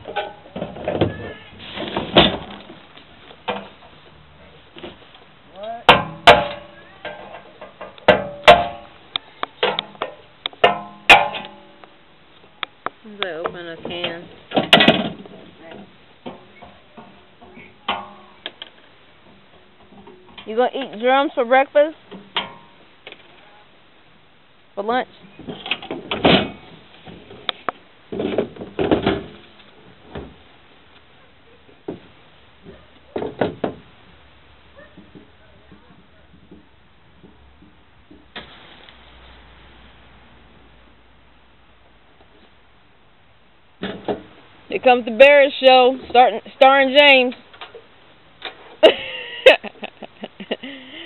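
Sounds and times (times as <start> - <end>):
metal boxes knocking and clunking: 0.0 - 2.8, 5.8 - 9.0, 9.6 - 12.0, 13.3 - 18.6, 25.3 - 27.5, 28.1 - 30.4, 31.7 - 34.0, 34.8 - 38.6, 43.8 - 44.4
metal knocks on steel box: 5.9 - 7.2, 8.1 - 8.9, 9.6 - 11.7.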